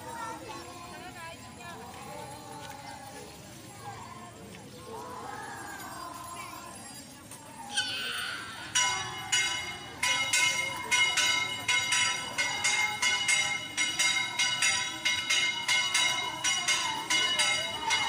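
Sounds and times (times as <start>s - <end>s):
murmur of crowd: 0.0s - 18.0s
bell struck rapidly: 7.7s - 18.0s.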